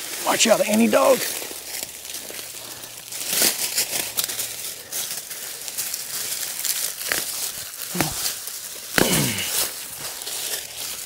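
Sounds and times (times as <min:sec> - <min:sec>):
dry leaves rustling and crackling: 0:00.0 - 0:11.0.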